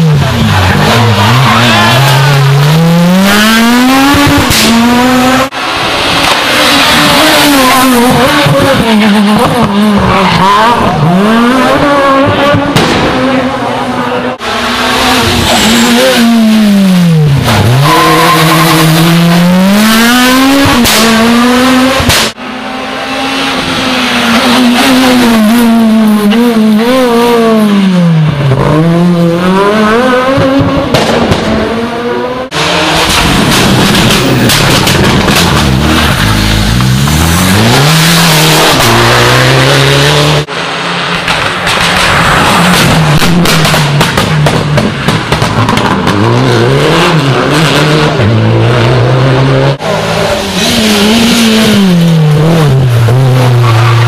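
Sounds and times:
rally cars passing at full throttle: 0.0s - 54.0s.

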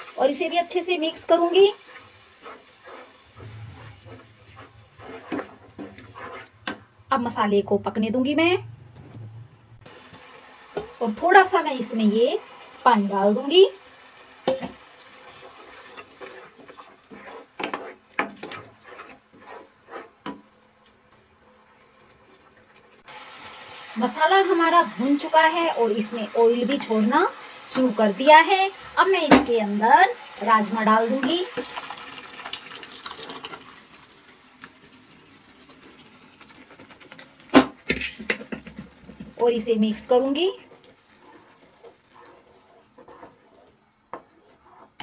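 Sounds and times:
wooden spatula scraping a pan: 0.0s - 7.0s, 10.0s - 12.2s, 13.4s - 21.2s, 24.4s - 31.9s, 35.6s - 45.0s
low simmer: 0.0s - 45.0s
beans and liquid pouring into pan: 31.4s - 39.4s.

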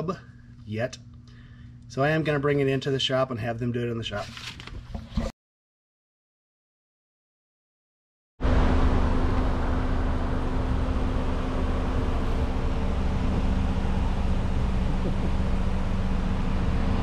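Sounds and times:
steady mechanical hum: 0.0s - 5.3s, 8.4s - 17.0s
low rumble: 8.4s - 17.0s.

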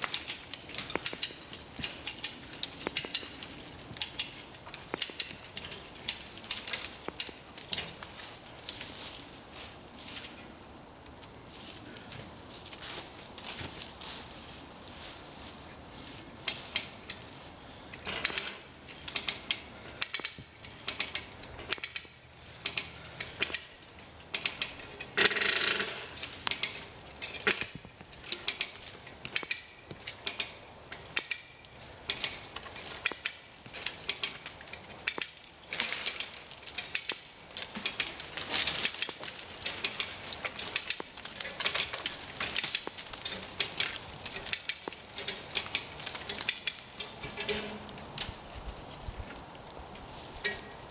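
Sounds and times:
ratchet winch pawl clicking: 0.0s - 3.4s, 4.0s - 7.4s, 18.0s - 47.7s.

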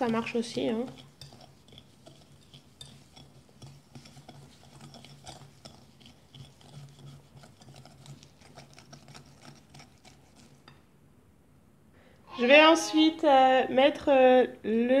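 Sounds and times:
whisk scraping glass bowl: 0.0s - 10.8s.

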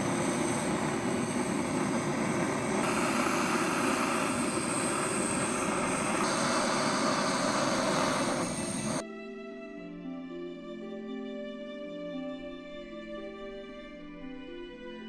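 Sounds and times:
gas torch hissing: 0.0s - 9.0s.

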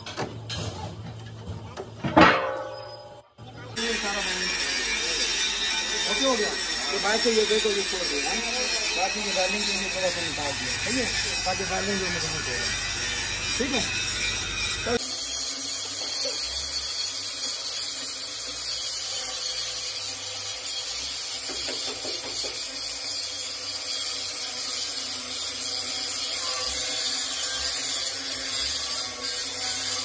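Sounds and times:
arc welding hiss: 15.0s - 30.0s.

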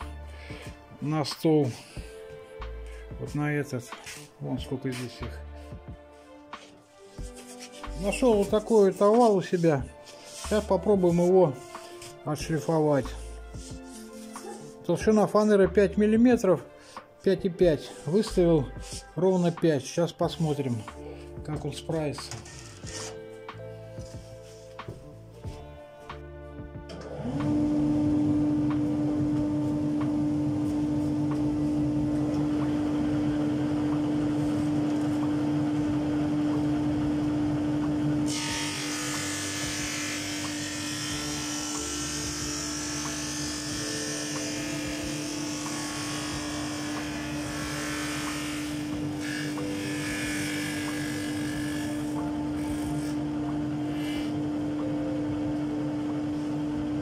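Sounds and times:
hissing grind of sanding wood: 3.8s - 5.4s, 6.2s - 14.9s
drum sander humming: 26.8s - 57.0s.

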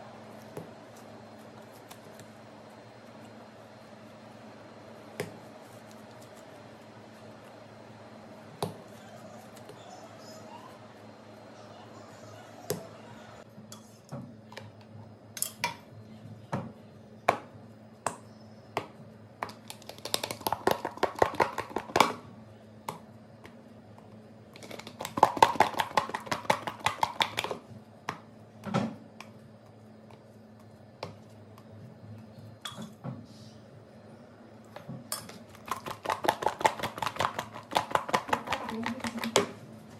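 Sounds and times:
dough balls knocking in plastic container: 18.8s - 22.2s, 24.6s - 29.0s, 35.6s - 39.6s.

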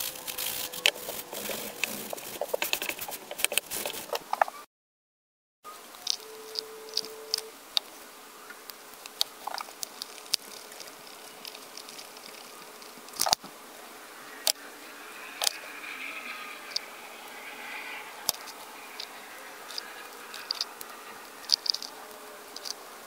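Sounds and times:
faint steady hum: 5.7s - 23.0s.

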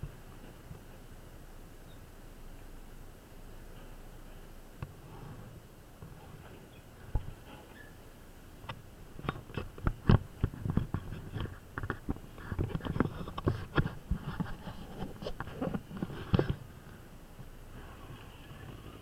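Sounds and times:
knocks and scrapes on camera housing: 9.2s - 16.6s.

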